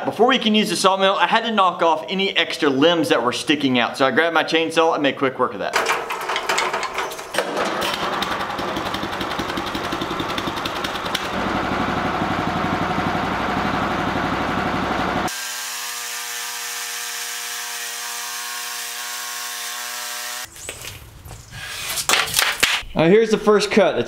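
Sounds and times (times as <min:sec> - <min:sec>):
band sawmill cutting log: 0:07.4 - 0:20.5.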